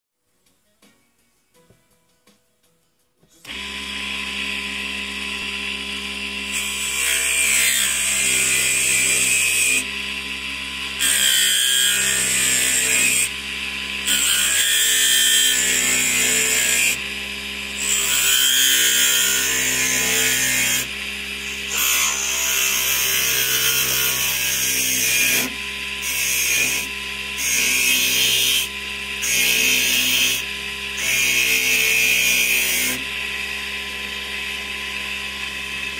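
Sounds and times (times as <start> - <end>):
lathe motor humming whine: 3.5 - 35.9.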